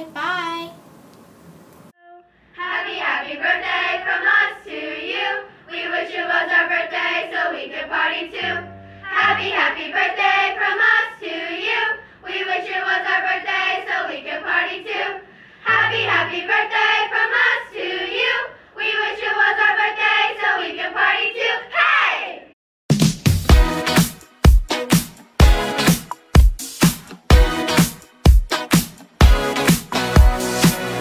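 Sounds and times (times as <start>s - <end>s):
girls singing together: 2.6s - 22.4s.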